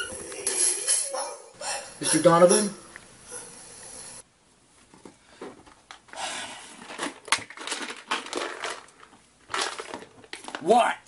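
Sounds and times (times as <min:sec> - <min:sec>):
plastic container rustling and clicking: 0:06.8 - 0:10.7.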